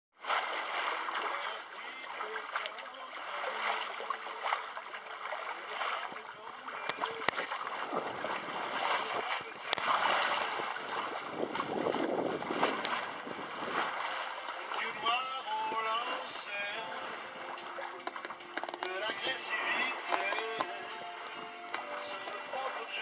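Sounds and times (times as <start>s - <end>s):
water rushing along boat hull: 0.2s - 23.0s
wind on microphone: 7.4s - 15.9s.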